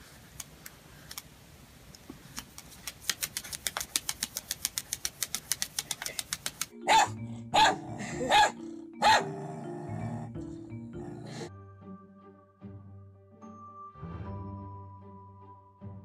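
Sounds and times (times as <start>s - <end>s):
dog barking loudly: 6.8s - 9.4s.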